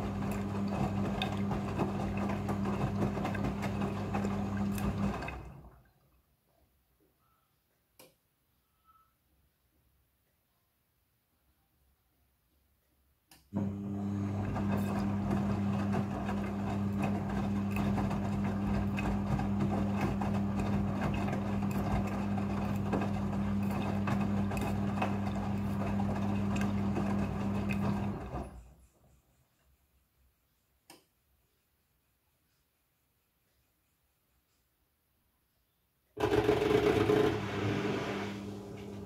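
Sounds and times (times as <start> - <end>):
washing machine motor hum: 0.0 - 5.9, 13.5 - 28.8, 36.2 - 39.0.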